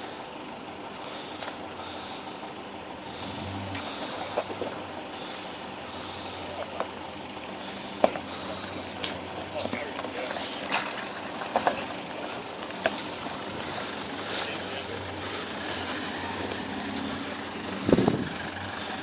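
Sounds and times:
off-road engines running low: 0.0 - 19.0.

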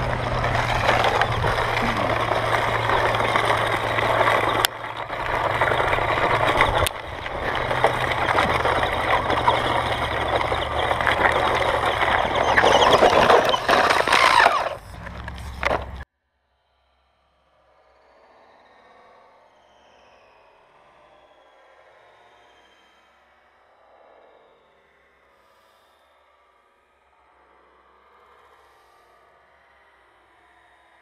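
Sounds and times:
tyres crunching over gravel: 0.0 - 16.0.

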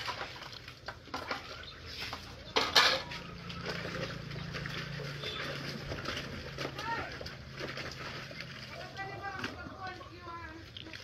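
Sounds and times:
pots and dishes clinking in water: 0.0 - 10.0
loud clatter of dishes: 2.5 - 3.2.

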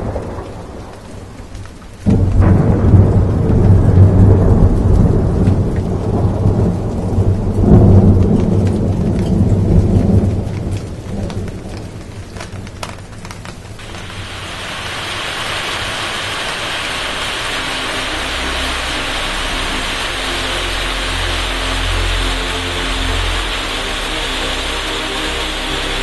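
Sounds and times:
rain falling: 0.0 - 26.0
thunder rumbling: 0.0 - 26.0.

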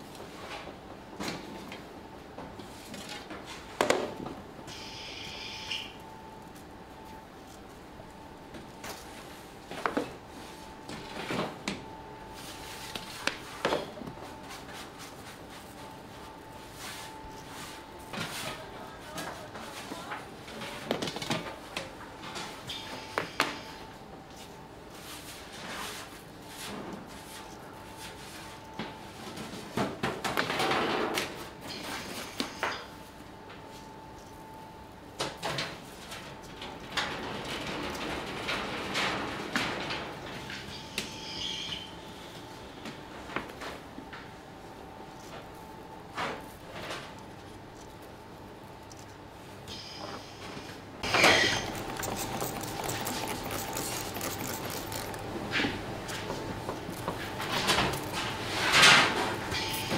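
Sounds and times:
faint steady hum: 0.0 - 29.9, 31.3 - 37.0
bakery knocks and scraping: 51.0 - 59.9.

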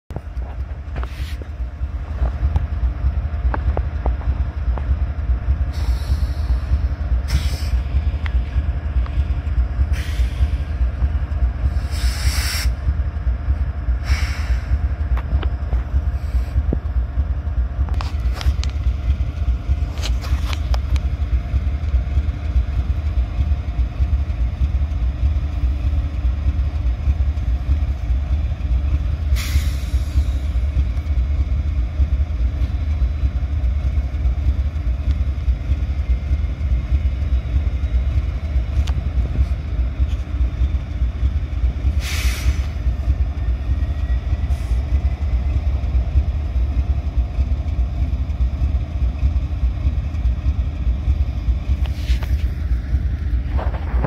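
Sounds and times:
diesel locomotives rumbling: 0.1 - 54.0.

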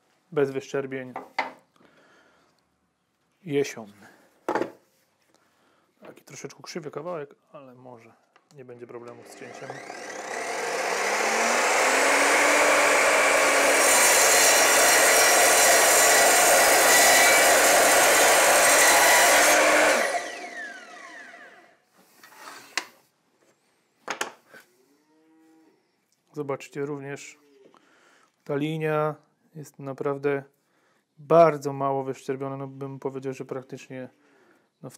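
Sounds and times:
saw blade cutting wood: 9.1 - 21.5
mitre saw whine: 9.1 - 21.6.

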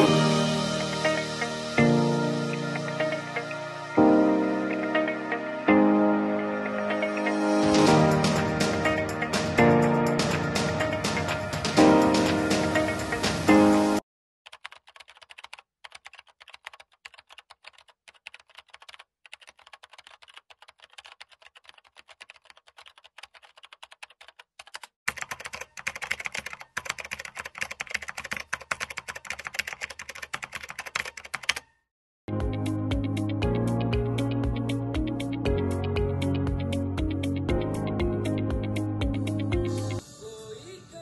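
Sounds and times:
computer keyboard typing: 14.5 - 31.7.

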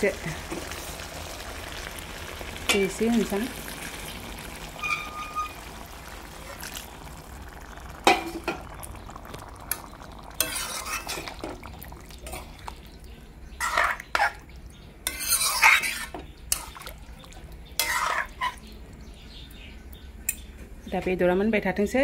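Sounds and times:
spoon scraping metal wok: 4.8 - 5.7, 10.4 - 11.6, 13.6 - 14.4, 15.0 - 16.8, 17.8 - 18.6.

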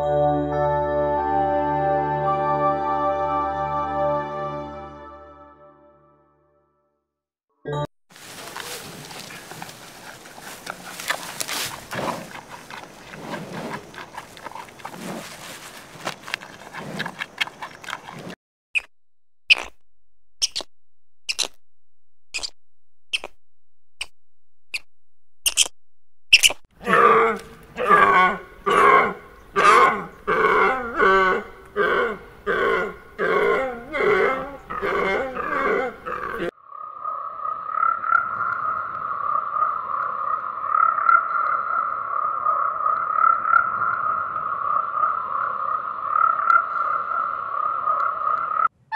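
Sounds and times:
rustling: 8.1 - 18.4
low animal grunts: 9.2 - 15.4, 26.8 - 36.5
sharp clicks: 25.5 - 26.6.

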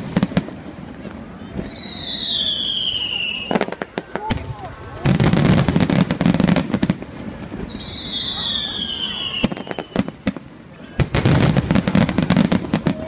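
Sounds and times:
firework bursts and crackling: 0.0 - 13.0
firework whistle falling in pitch: 1.6 - 4.5, 7.6 - 10.1.

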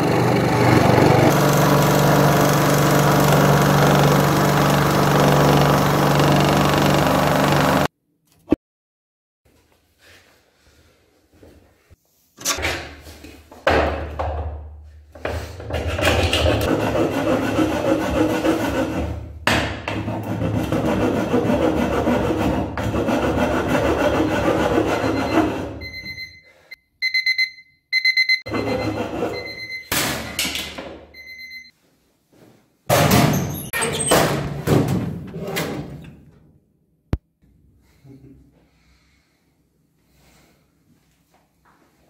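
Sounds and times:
handsaw cutting plywood: 0.0 - 7.9, 15.8 - 25.8
digital alarm clock beeping: 25.2 - 29.9.

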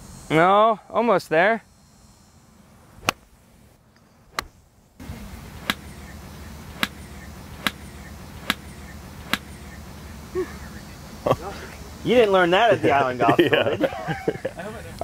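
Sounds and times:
low hum: 1.6 - 12.0
golf club striking balls: 3.0 - 3.3, 4.3 - 9.8.

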